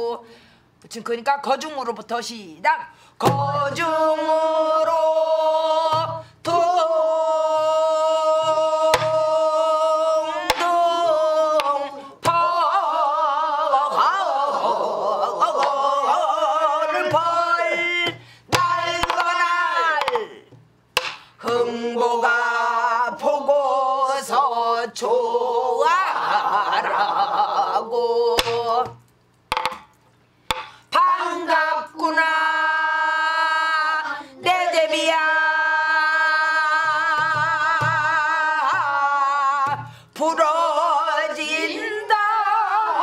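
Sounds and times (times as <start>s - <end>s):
woman singing with vibrato: 0.0s - 0.3s, 2.7s - 20.6s, 21.4s - 29.0s, 30.5s - 43.0s
stick strokes on barrel drum: 30.5s - 30.7s.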